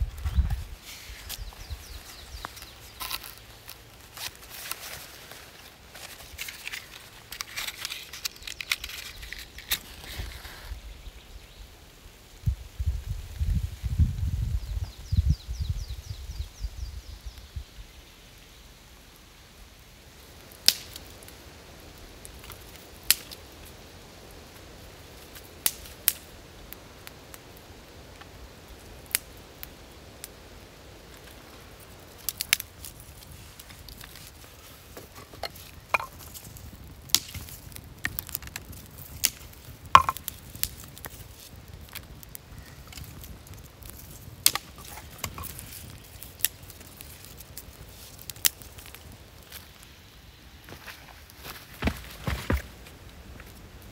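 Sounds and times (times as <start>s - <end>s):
dry kindling snapping: 0.1s - 10.8s, 20.4s - 21.4s, 22.2s - 49.9s.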